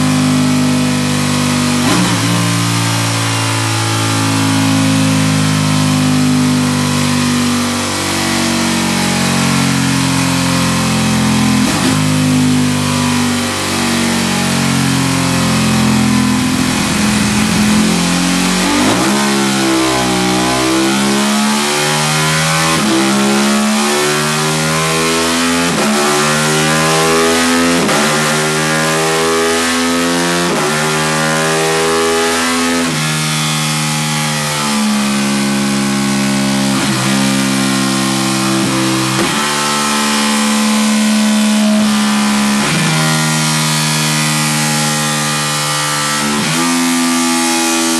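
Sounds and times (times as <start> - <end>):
motorcycle engine revving through gears: 0.0 - 47.9
throttle blips on downshifts: 11.0 - 34.0.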